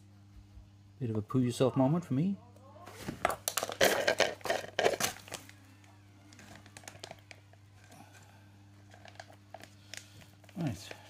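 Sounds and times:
low electrical hum: 0:00.0 - 0:11.0
rustling handling noises: 0:06.3 - 0:11.0.

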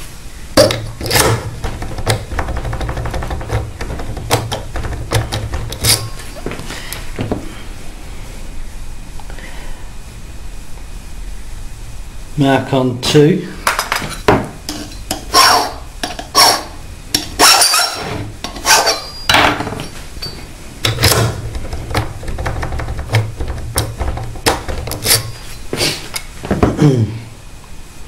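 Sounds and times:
hand file rasping on metal: 0:25.0 - 0:25.4.

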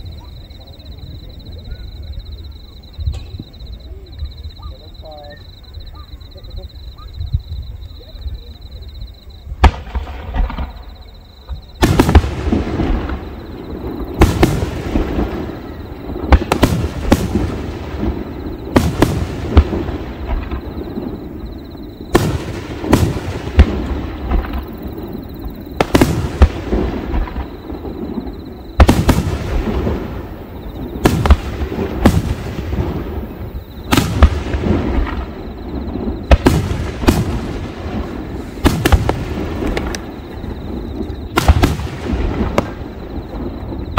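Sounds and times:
firework shells bursting: 0:28.8 - 0:43.6.

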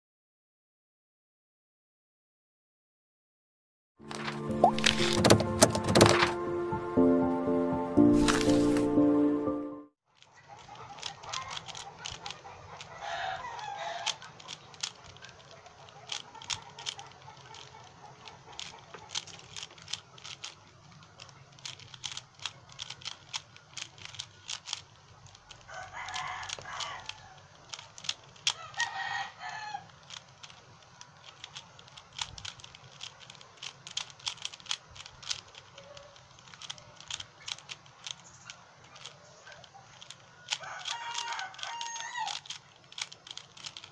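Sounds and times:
puzzle cube clicking: 0:04.1 - 0:06.4, 0:10.2 - 0:43.9
animal calls: 0:10.3 - 0:20.3, 0:35.5 - 0:42.8.

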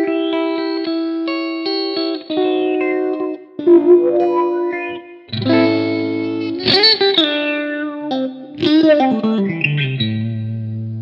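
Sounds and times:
clean electric guitar chords: 0:00.0 - 0:09.6
quacky auto-wah filter sweep: 0:03.6 - 0:05.9.

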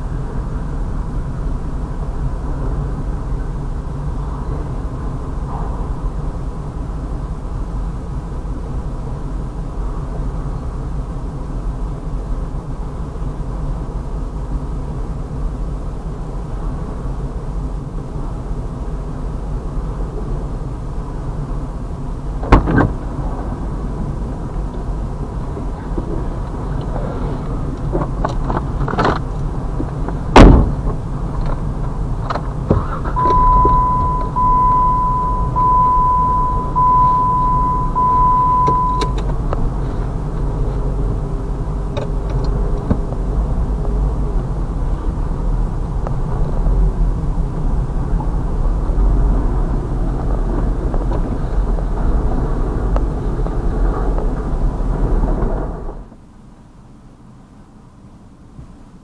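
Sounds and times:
car engine idling: 0:00.0 - 0:55.4
sharp knock: 0:30.4 - 0:30.8
electronic beeps: 0:33.0 - 0:39.2.

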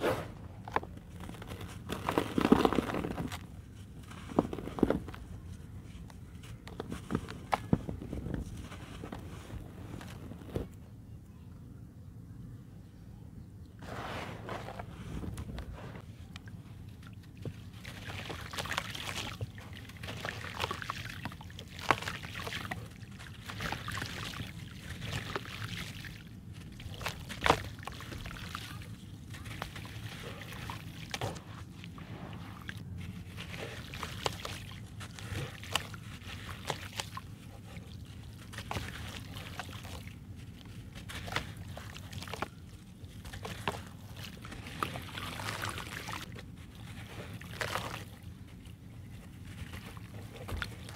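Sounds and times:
hands sloshing in water: 0:16.8 - 0:50.9.

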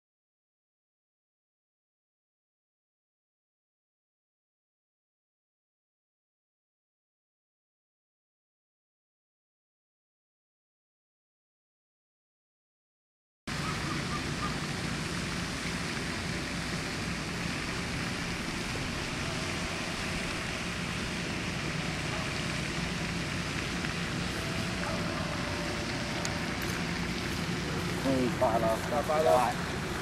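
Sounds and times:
outdoor background rush: 0:13.5 - 0:30.0.

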